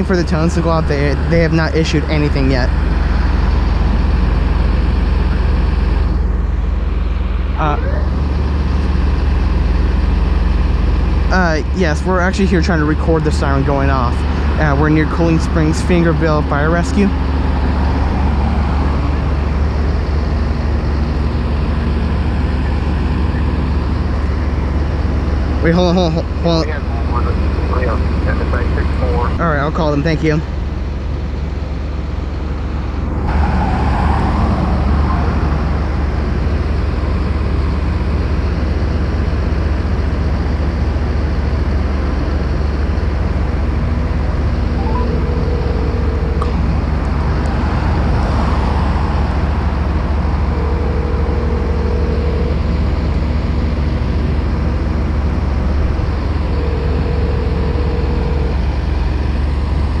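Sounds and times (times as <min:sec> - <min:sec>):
road traffic rumble: 0:00.0 - 1:00.0
cars passing: 0:11.4 - 0:39.3, 0:42.3 - 1:00.0
telephone ringback tone: 0:44.7 - 0:46.6, 0:50.6 - 0:52.8, 0:56.4 - 0:58.6.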